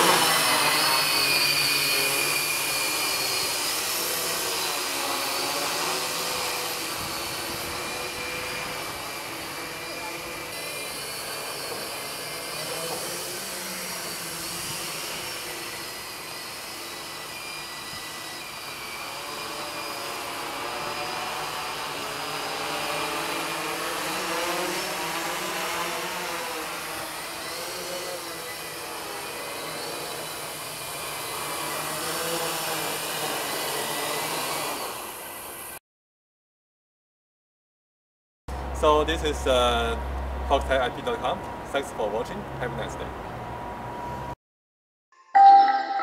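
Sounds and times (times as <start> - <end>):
multi-rotor drone buzz: 0.0 - 35.8.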